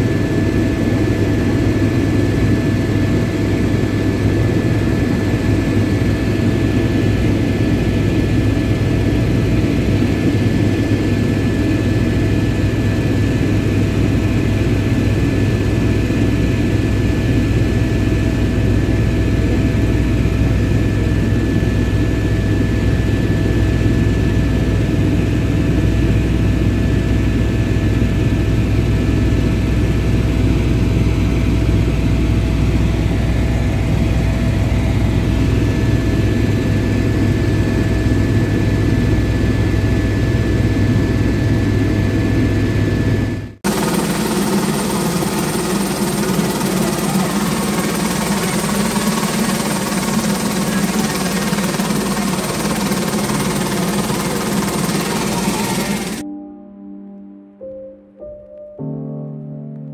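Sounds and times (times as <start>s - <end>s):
helicopter rotor and engine drone: 0.0s - 56.2s.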